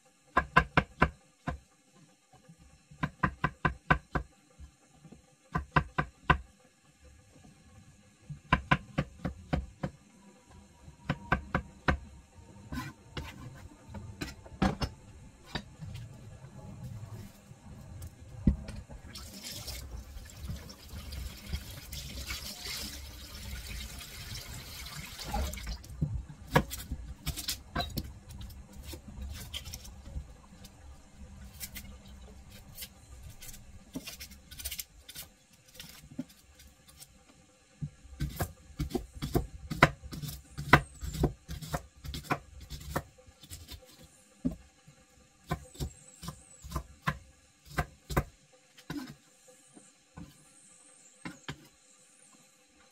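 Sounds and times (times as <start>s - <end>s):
knife chopping on wooden board: 38.2s - 43.7s.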